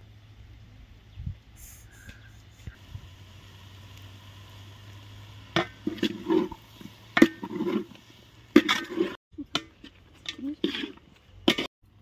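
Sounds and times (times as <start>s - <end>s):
spoon scraping a pan: 5.6s - 11.7s.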